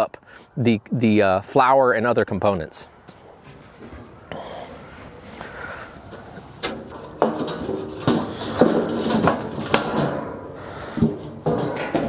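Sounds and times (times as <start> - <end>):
steel drums knocking and scraping: 6.1 - 12.0.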